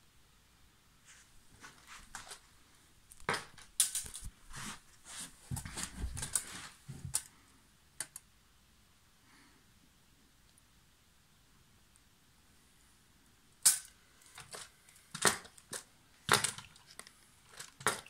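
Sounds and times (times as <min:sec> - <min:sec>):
plastic parts clicking and rattling: 0:03.1 - 0:04.3, 0:13.6 - 0:18.0
tape measure handled: 0:03.5 - 0:07.2.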